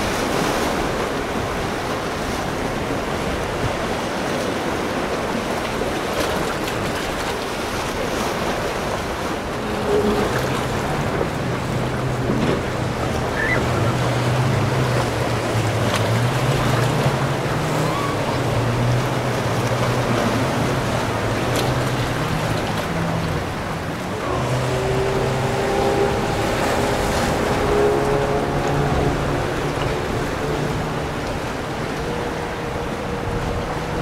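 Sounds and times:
motorboat engines running: 0.0s - 34.0s
waves rushing: 0.0s - 34.0s
wind: 0.0s - 34.0s.

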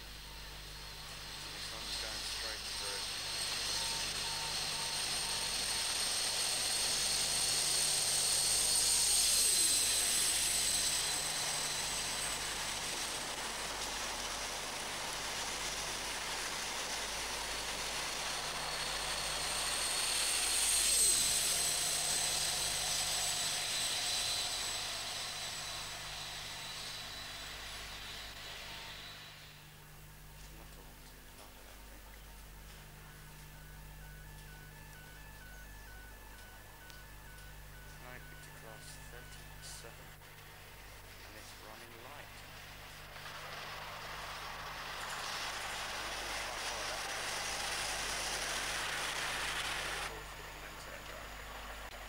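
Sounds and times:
express train passing: 0.0s - 30.0s, 31.5s - 51.0s
high engine whine: 0.0s - 52.0s
train passing at speed: 33.6s - 50.1s.

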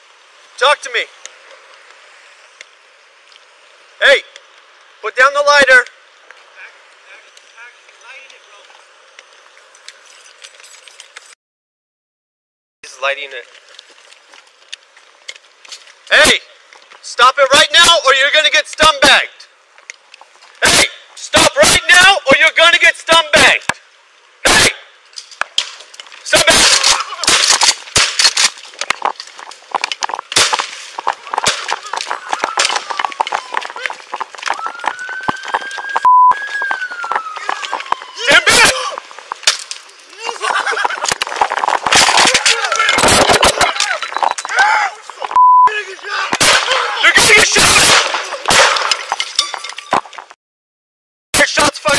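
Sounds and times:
gunshots: 24.5s - 24.8s, 26.3s - 28.5s, 30.3s - 32.9s, 41.8s - 43.8s, 46.3s - 49.2s
body camera rustling and knocking: 25.4s - 45.3s
people shouting: 31.1s - 39.1s, 40.0s - 40.6s, 42.2s - 48.6s.

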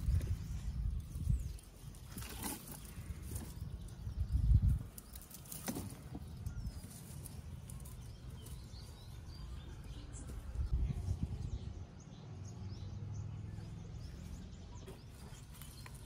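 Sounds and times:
low rumble on microphone: 0.0s - 5.1s, 6.0s - 14.8s
dry plants rustling: 0.0s - 10.7s, 14.9s - 16.0s.

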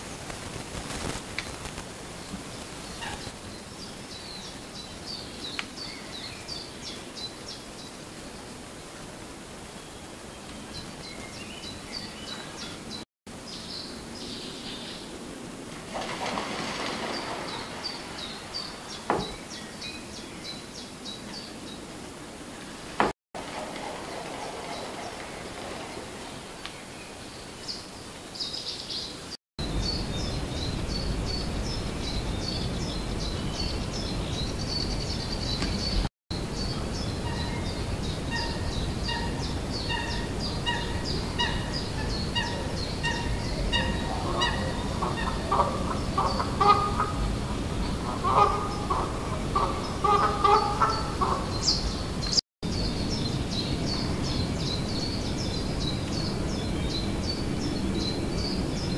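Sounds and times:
small birds chirping: 24.6s - 58.9s
waterfowl honking: 37.2s - 37.6s, 38.3s - 51.8s.

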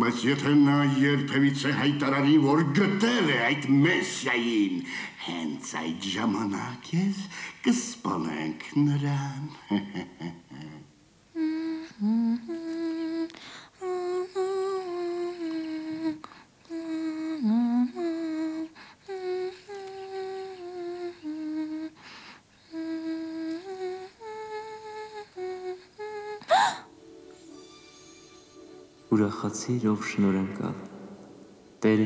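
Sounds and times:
woman humming: 9.2s - 27.0s.

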